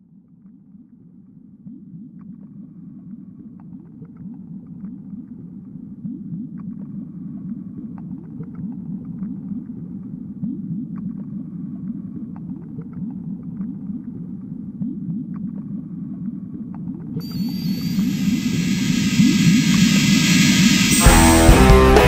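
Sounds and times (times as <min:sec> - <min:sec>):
low rumbling drone with swoops: 0:18.1 - 0:22.0.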